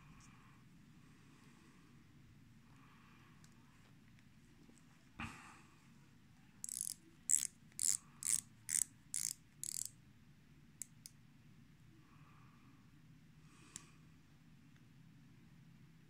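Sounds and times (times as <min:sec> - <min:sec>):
watch ratcheting: 0:06.6 - 0:09.9.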